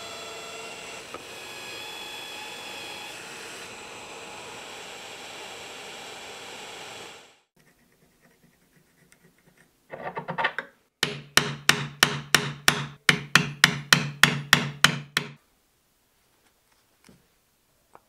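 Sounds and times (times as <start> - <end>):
mallet striking wood chisel: 11.0 - 15.4.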